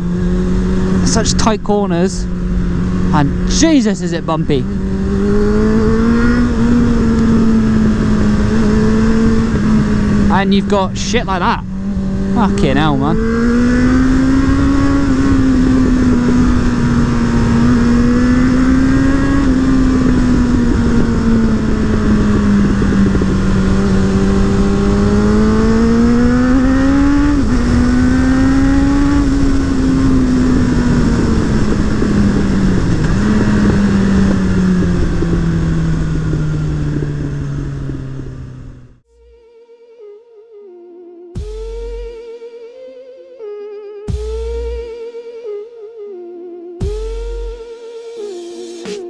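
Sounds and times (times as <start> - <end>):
motorcycle engine revving: 0.0 - 49.0
wind rush: 4.2 - 28.2, 29.1 - 38.6.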